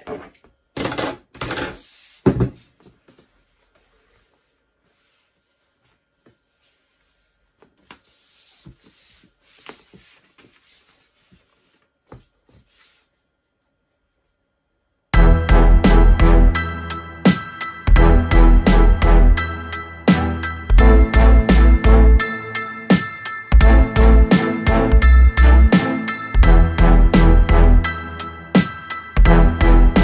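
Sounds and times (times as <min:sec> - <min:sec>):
paper rustling: 0:03.0 - 0:13.2.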